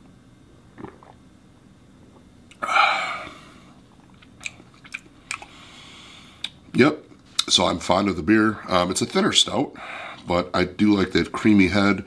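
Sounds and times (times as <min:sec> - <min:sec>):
man breathing out: 0:02.6 - 0:03.8
lip smacks and tongue clicks: 0:04.1 - 0:05.5, 0:06.4 - 0:06.6.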